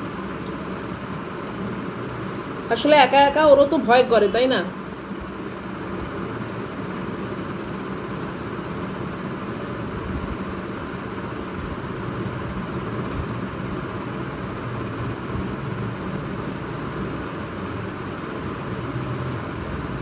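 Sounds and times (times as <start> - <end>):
background hum and hiss: 0.0 - 20.0.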